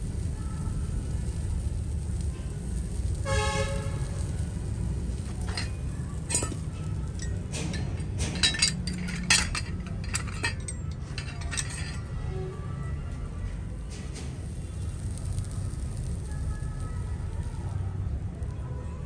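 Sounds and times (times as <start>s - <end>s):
steady low rumble: 0.0s - 12.3s, 13.1s - 19.0s
metal plates clinking: 5.3s - 12.0s.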